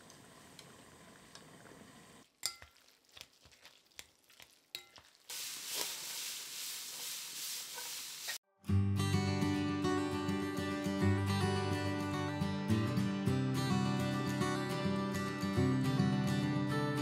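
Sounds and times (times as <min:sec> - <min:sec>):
noodles bubbling in boiling water: 0:00.0 - 0:08.4
wet squishing of noodles mixed by hand: 0:02.4 - 0:08.4
cabbage sizzling in a hot pan: 0:02.8 - 0:08.4.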